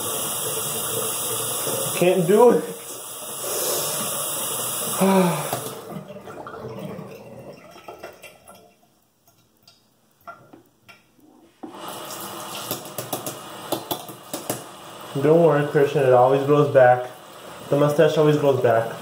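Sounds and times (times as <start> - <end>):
brief vocal sound: 5.0 - 5.8
tap running into sink: 11.6 - 14.7.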